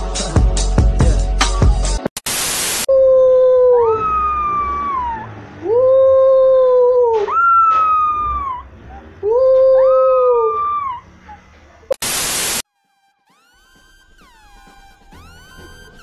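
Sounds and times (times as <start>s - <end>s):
background music: 0.0s - 2.1s
loud static hiss: 2.2s - 2.9s, 11.9s - 12.6s
puppy howling: 2.9s - 11.5s.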